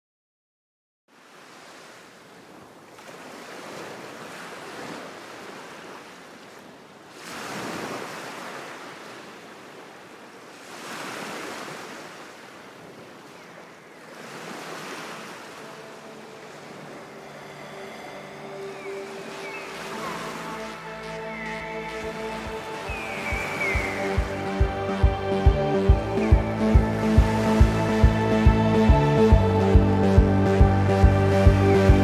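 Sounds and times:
sea waves breaking on beach: 0:01.1 - 0:24.6.

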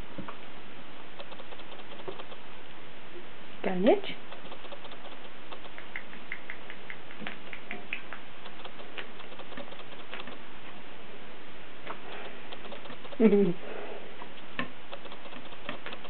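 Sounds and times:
kitten claws clicking on wire gate: 0:14.4 - 0:16.0.

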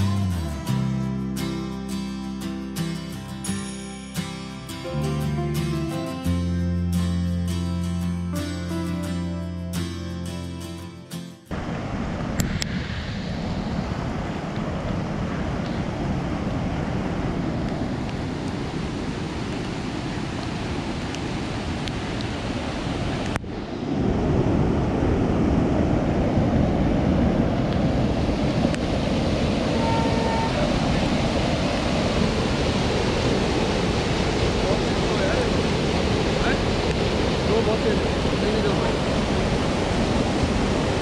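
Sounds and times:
floodwater rushing: 0:11.5 - 0:41.0
wind buffeting microphone: 0:11.5 - 0:41.0.

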